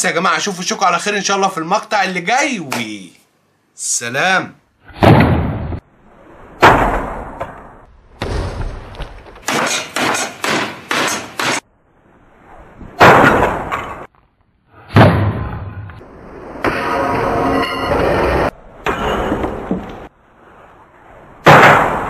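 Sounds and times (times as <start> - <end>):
loud crashing impacts: 6.6 - 9.7.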